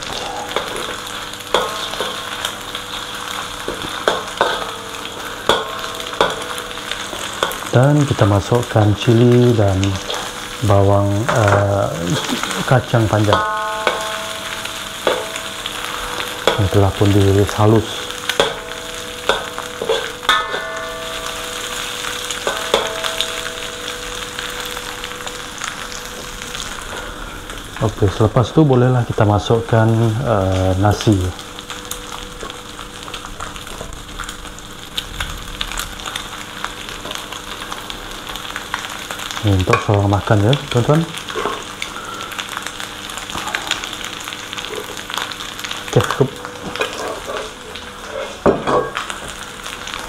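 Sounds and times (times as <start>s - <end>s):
spatula scraping wok: 0.0s - 25.4s, 46.6s - 48.5s
food sizzling in hot oil: 0.0s - 50.0s
spatula clanking wok: 0.5s - 25.4s, 39.1s - 42.6s
metal spatula knocking on wok: 3.7s - 4.8s, 5.5s - 6.6s, 13.3s - 15.6s, 18.4s - 21.5s, 22.4s - 23.7s.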